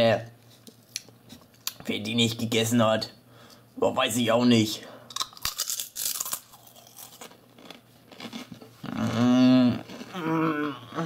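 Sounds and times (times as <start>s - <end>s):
crisps crunching while chewed: 5.1s - 9.1s.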